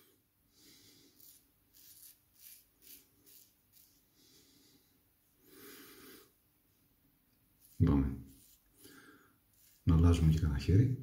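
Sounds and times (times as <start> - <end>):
razor scraping stubble: 1.0 - 4.1, 7.5 - 10.5.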